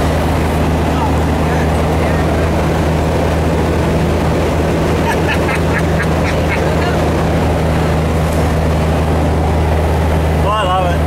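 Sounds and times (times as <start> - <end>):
diesel engine droning: 0.0 - 11.0
rhythmic laughter: 5.0 - 7.1.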